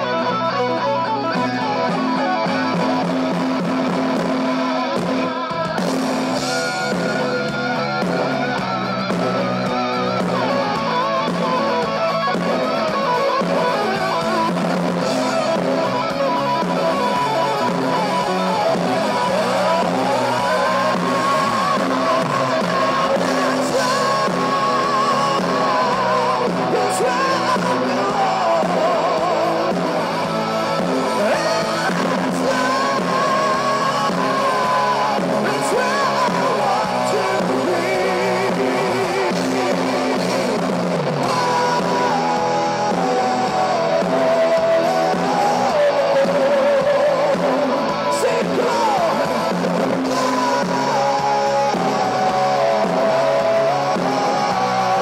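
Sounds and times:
high lead guitar line: 0.0 - 55.0
live rock band playing: 0.0 - 55.0.

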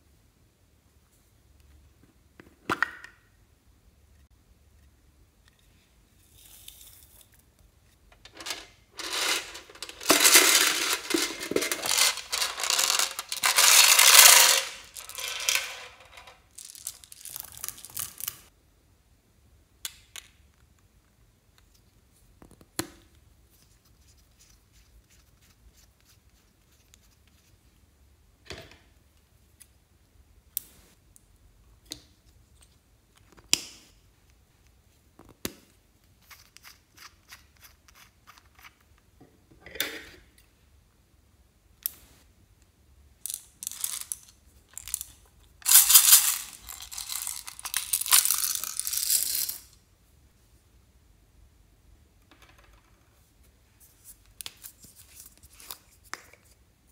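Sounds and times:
plastic tubes clicking: 8.2 - 18.4, 43.2 - 49.7
confetti and beads rattling: 8.4 - 18.5, 43.3 - 49.8.

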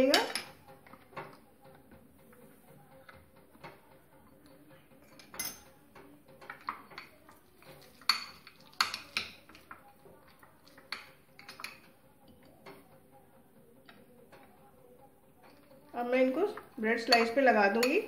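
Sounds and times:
spoon stirring and scraping: 0.0 - 18.0
spoon clinking on glass bowl: 7.8 - 9.5, 17.0 - 18.0.

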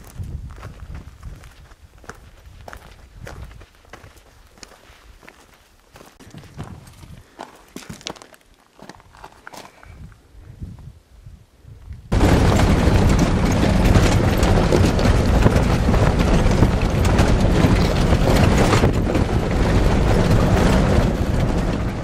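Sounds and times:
wind buffeting microphone: 0.0 - 4.4, 6.3 - 7.4, 9.9 - 22.0
road rumble: 12.1 - 22.0.

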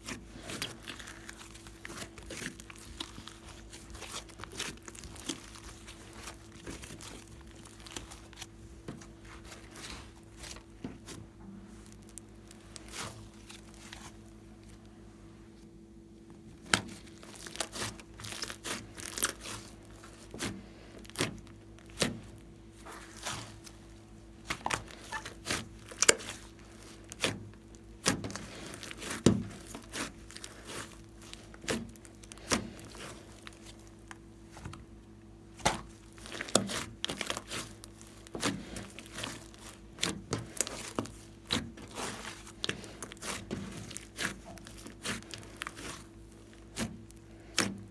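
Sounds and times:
slime popping and crackling: 0.0 - 8.6, 11.8 - 14.2, 16.6 - 22.4, 23.0 - 47.9.

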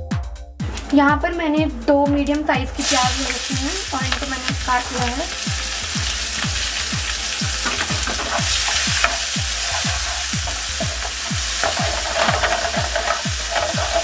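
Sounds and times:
onions sizzling in hot oil: 2.8 - 14.0
wooden spatula stirring in pan: 6.0 - 14.0.

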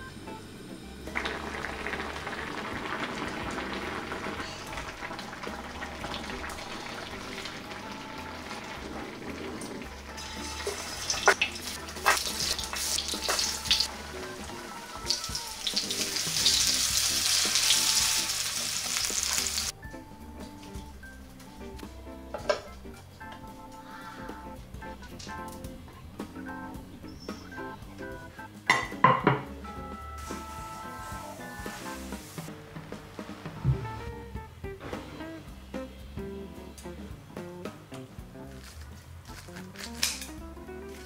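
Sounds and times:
food sizzling in hot oil: 0.6 - 19.8, 30.2 - 32.5
metal tongs clicking against pan: 39.7 - 40.4.

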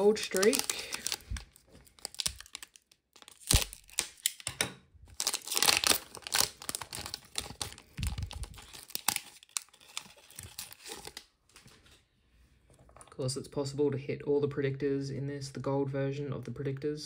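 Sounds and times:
foil wrapper tearing and crinkling: 0.0 - 4.5, 5.1 - 11.2.

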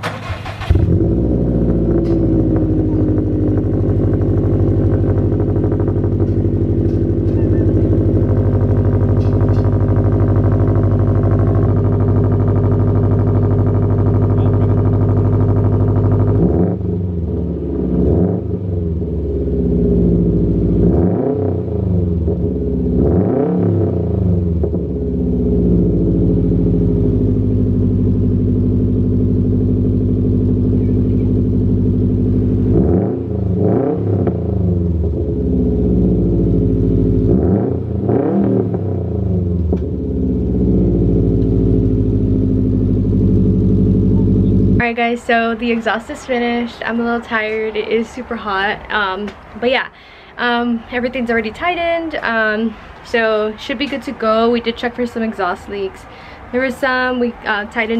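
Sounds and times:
car engine idling: 0.0 - 57.9
engine revving in quick blips: 22.8 - 24.9, 32.3 - 34.9, 37.3 - 45.7.

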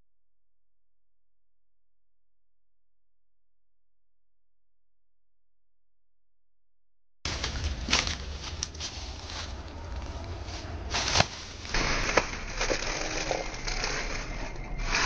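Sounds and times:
low rumble: 7.3 - 15.0.

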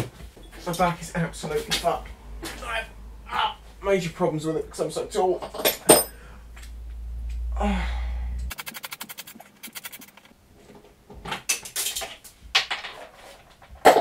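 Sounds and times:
fast run of clicks: 8.5 - 10.4.

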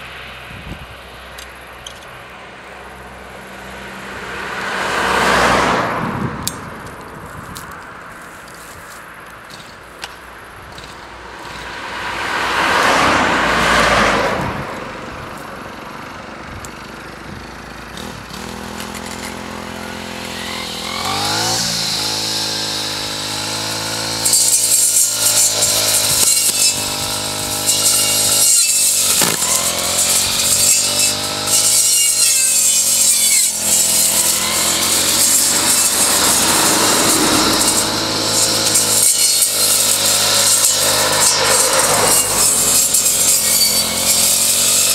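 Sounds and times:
brushcutter blade mowing grass: 0.0 - 44.9
brushcutter engine: 0.0 - 44.9
car passing close by: 2.5 - 8.1, 11.1 - 16.0.

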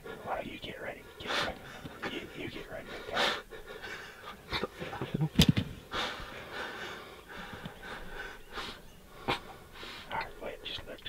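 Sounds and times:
person breathing in short breaths: 5.8 - 10.1.

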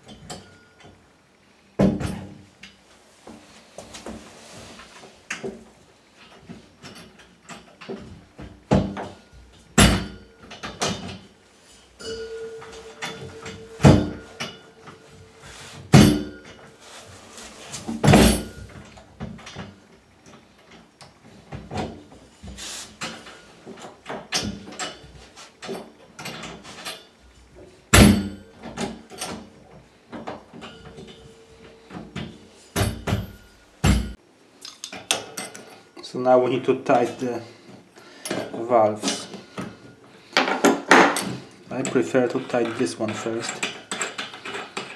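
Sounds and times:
metal clinks of pipe fittings: 12.0 - 15.1.

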